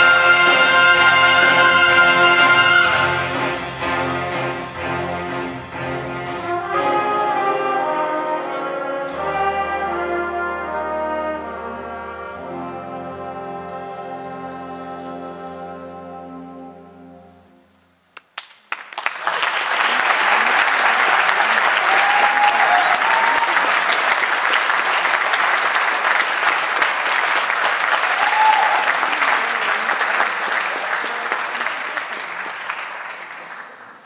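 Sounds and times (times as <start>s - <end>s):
audience applauding: 18.3s - 34.0s.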